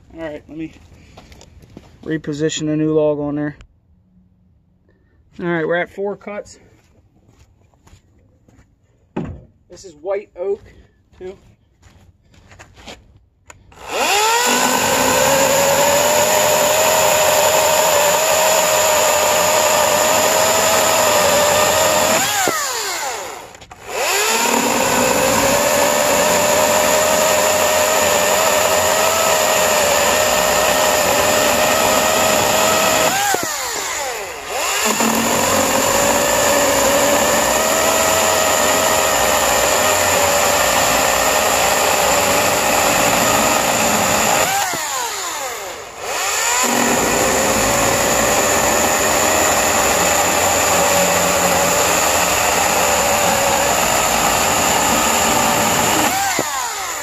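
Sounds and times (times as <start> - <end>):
electric chainsaw cutting wood: 13.5 - 57.0.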